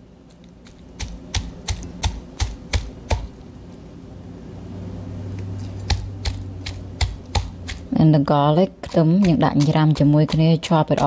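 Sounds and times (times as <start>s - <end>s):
cleaver chopping on wooden board: 1.0s - 3.3s, 5.9s - 7.9s, 8.8s - 11.0s.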